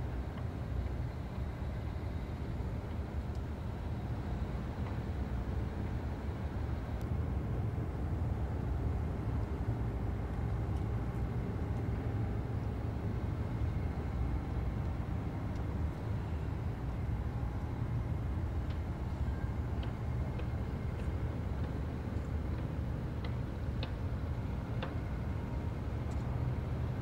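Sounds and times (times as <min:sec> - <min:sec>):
low outdoor rumble: 0:00.0 - 0:27.0
faint ticks: 0:02.9 - 0:03.5, 0:18.6 - 0:18.8, 0:19.8 - 0:24.0, 0:26.0 - 0:26.4.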